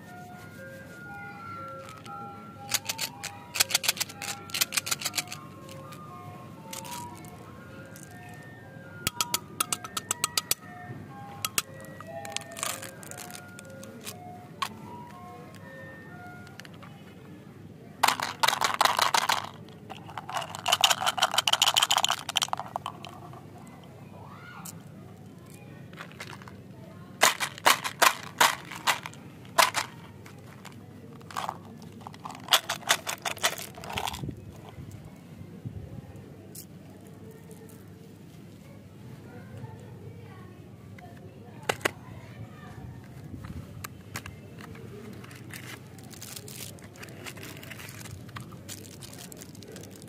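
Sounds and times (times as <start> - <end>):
candies rattling out into hand: 1.7 - 10.6, 11.4 - 15.0, 18.0 - 23.4, 25.9 - 26.6, 27.2 - 34.3, 45.1 - 50.0
cardboard and cellophane crinkling: 11.8 - 14.3, 45.0 - 50.0.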